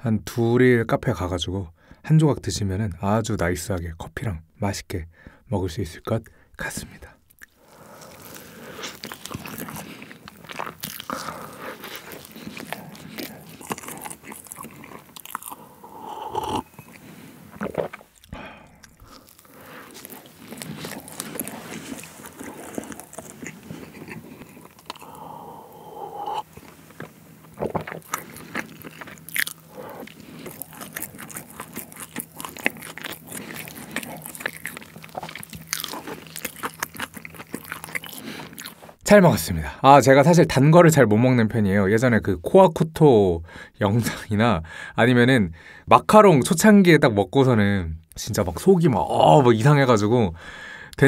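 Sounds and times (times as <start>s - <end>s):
chewing cake: 7.2s - 39.0s
wet mouth clicks and smacks: 7.3s - 7.6s
sip and swallow: 7.3s - 37.4s.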